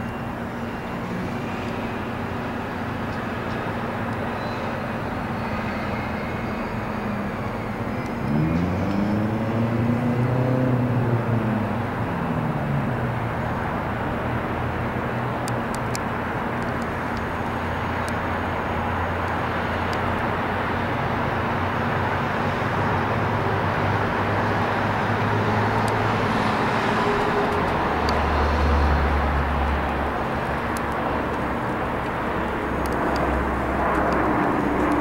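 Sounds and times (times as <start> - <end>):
aircraft engine rumble: 10.8 - 35.0.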